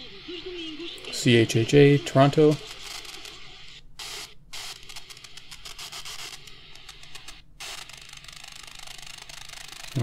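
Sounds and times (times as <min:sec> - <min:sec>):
radio static: 0:00.0 - 0:07.4.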